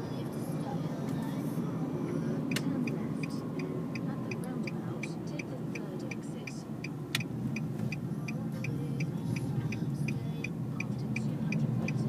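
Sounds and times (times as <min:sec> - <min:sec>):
car cabin road rumble: 0:00.0 - 0:12.0
light regular ticking: 0:02.5 - 0:12.0.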